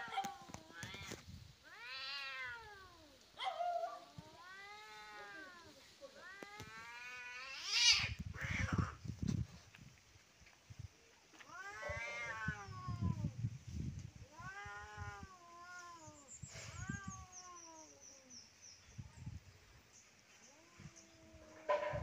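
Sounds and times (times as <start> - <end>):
cats yowling in a fight: 0.0 - 9.0, 11.3 - 13.4, 14.2 - 18.3, 20.5 - 22.0.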